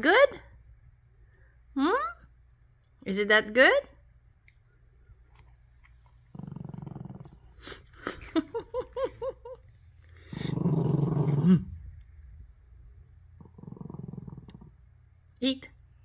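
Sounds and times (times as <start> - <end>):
dog growling low: 6.3 - 7.8, 10.1 - 12.1, 13.3 - 15.0.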